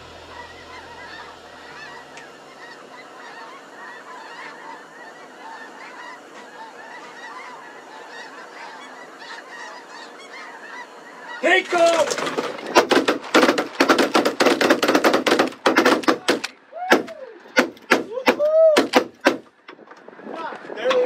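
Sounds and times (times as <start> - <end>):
flock of geese honking: 0.0 - 16.2.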